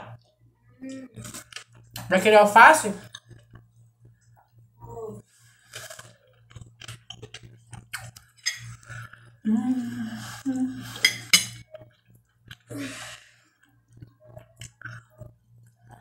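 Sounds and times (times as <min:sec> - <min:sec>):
steady low hum: 0:00.0 - 0:16.0
lip smacks and chewing: 0:05.8 - 0:08.9, 0:13.6 - 0:16.0.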